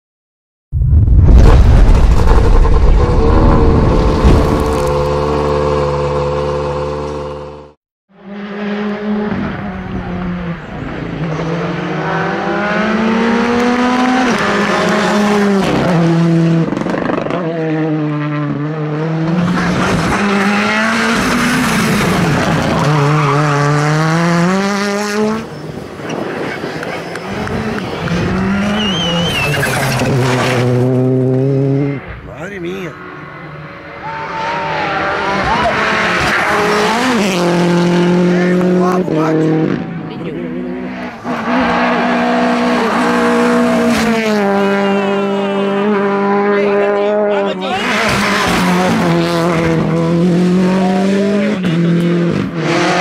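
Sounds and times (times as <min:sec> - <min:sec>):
deep rumble: 0:00.7 - 0:05.2
rally car engines accelerating: 0:02.4 - 0:53.0.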